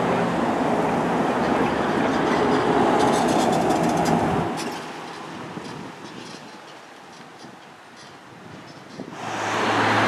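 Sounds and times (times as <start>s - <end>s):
vehicle passing by: 9.2s - 10.0s.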